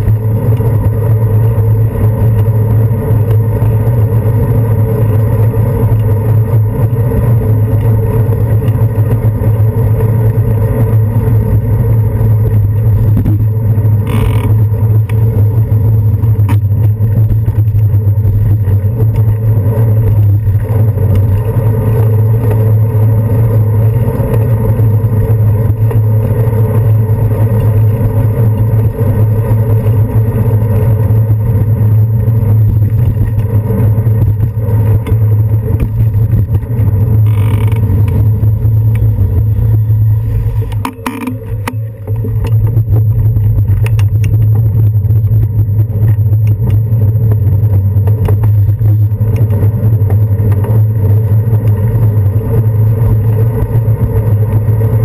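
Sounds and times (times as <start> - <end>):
bicycle rolling over pavement: 0.0 - 55.0
wind on camera: 0.0 - 55.0.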